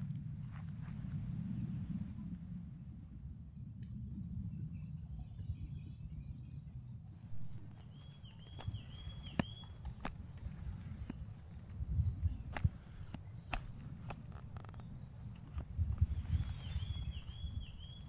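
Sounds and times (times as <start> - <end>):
wind rumble: 0.0 - 18.0
bird chirping: 3.6 - 18.0
microphone handling noise: 7.3 - 17.8.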